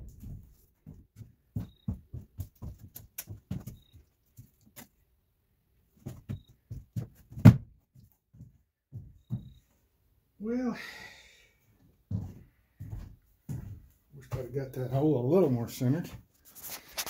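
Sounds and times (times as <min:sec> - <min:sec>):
footsteps on wood subfloor: 0:00.0 - 0:04.7, 0:06.0 - 0:09.8, 0:11.8 - 0:16.3.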